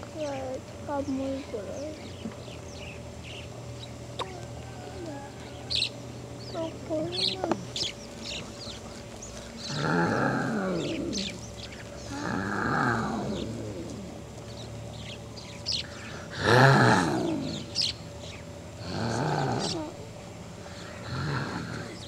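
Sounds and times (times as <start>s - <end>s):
small birds chirping: 0.0s - 22.0s
animal low falling calls: 4.2s - 6.0s, 9.3s - 14.4s, 16.2s - 17.9s, 18.8s - 22.0s.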